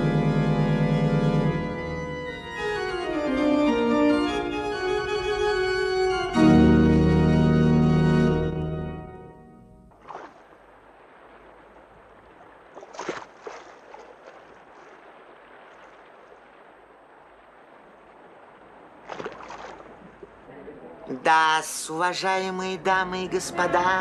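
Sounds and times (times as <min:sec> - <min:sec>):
organ music: 0:00.0 - 0:09.8
sea waves washing: 0:09.9 - 0:24.0.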